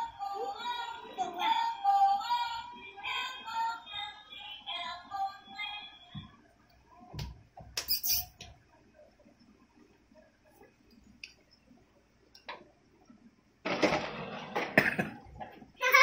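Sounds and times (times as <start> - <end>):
child laughing loudly: 15.8 - 16.0.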